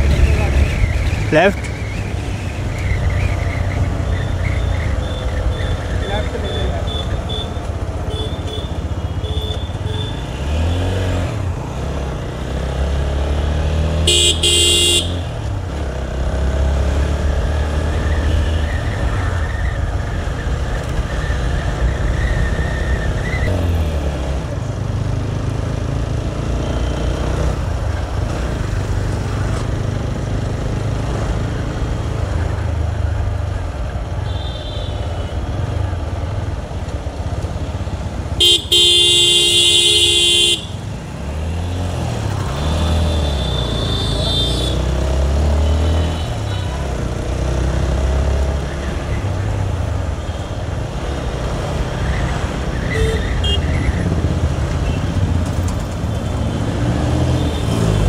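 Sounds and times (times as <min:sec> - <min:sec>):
vehicle horn honking: 0:14.1 - 0:15.3, 0:38.4 - 0:40.8, 0:43.1 - 0:44.8
motorcycle engine revving: 0:37.3 - 0:48.8.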